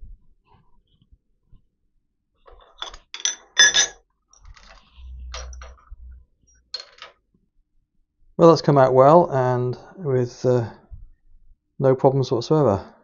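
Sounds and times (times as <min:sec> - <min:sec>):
metal tools clinking: 0:02.6 - 0:06.0, 0:06.8 - 0:07.2
low rumble: 0:04.5 - 0:06.4.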